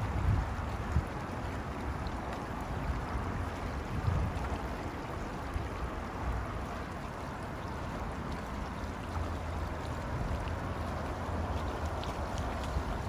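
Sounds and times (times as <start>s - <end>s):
water rushing from outlet: 0.0s - 13.0s
wind rumble on microphone: 0.0s - 13.0s.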